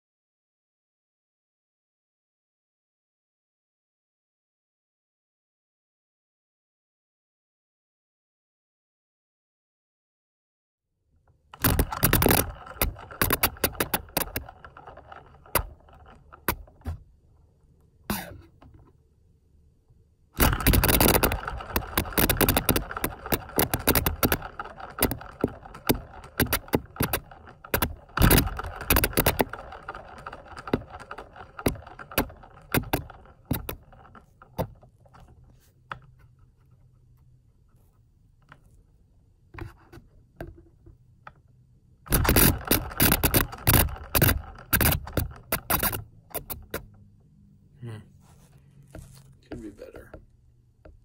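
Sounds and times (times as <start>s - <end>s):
cardboard disc rattling and clicking: 11.6s - 17.6s, 20.4s - 36.6s, 42.1s - 47.1s.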